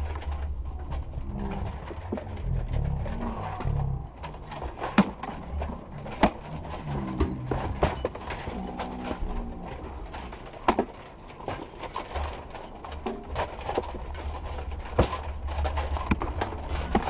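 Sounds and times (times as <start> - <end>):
low rumble: 0.0 - 10.4
weapons striking shields and armour: 2.9 - 12.3.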